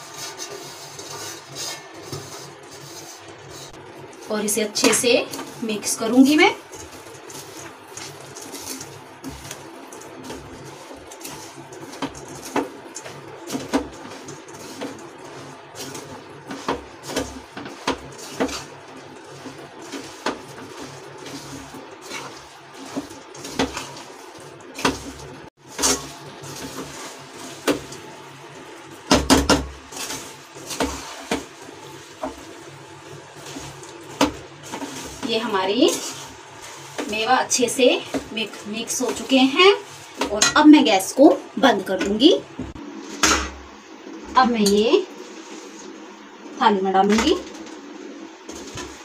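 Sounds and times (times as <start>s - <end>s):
metal spatula scraping pan: 0.0s - 9.6s, 10.2s - 27.9s, 33.4s - 41.1s.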